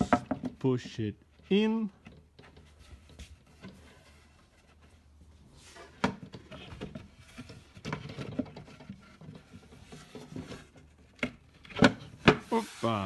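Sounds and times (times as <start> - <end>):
board taps and scrapes: 0.0 - 1.0, 5.6 - 12.8.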